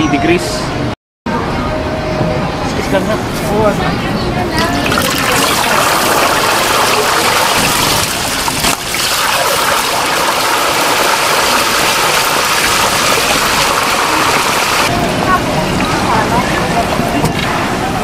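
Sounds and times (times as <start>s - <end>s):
chicken frying in hot oil: 5.0s - 14.9s.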